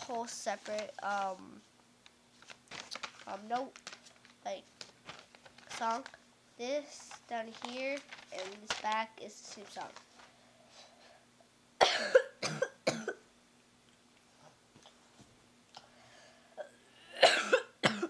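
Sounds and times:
girl coughing: 11.8 - 13.2, 16.6 - 18.0.

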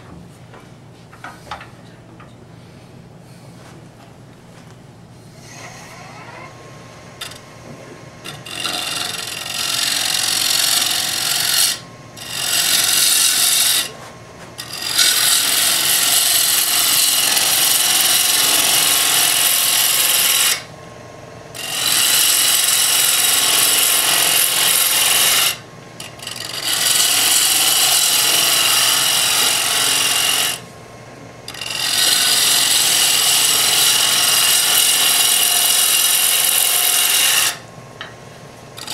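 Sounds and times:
lathe tool scraping wood: 8.2 - 20.7, 21.6 - 30.7, 31.5 - 37.6.

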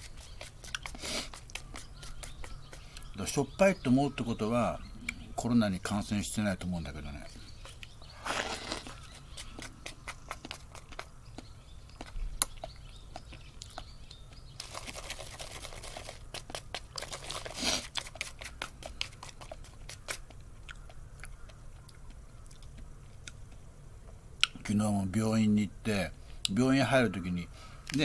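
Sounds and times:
chewing and mouth sounds: 0.0 - 3.2, 5.0 - 5.3, 7.6 - 24.6.

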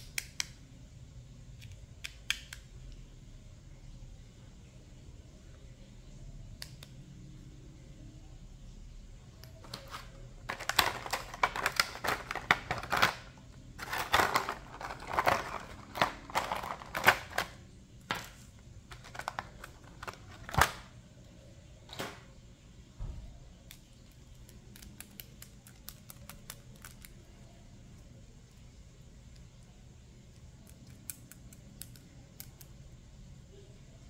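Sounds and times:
plastic packaging crackling: 9.6 - 20.9.

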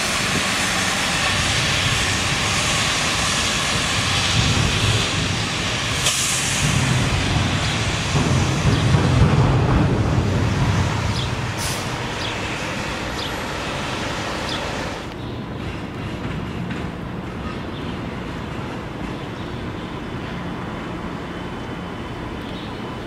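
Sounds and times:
traffic hiss on wet road: 0.0 - 15.2
bus engine rumbling: 0.0 - 23.0.

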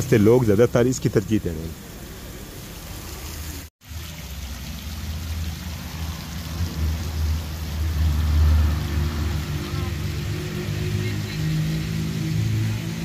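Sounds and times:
fountain water splashing: 0.0 - 13.0.

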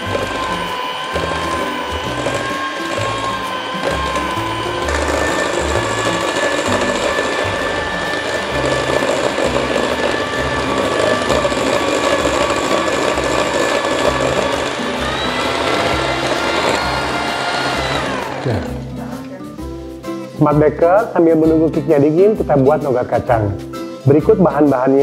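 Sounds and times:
beaters churning buttercream: 0.0 - 18.9
electric hand mixer whining: 0.0 - 20.0.

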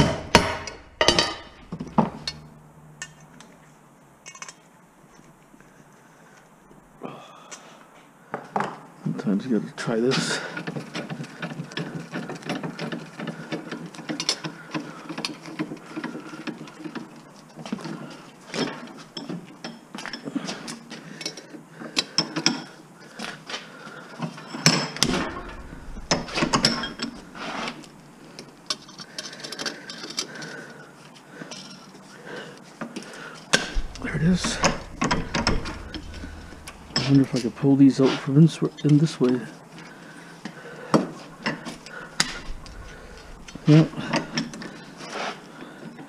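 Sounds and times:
loud knocks on metal: 0.0 - 2.3, 33.6 - 37.4.

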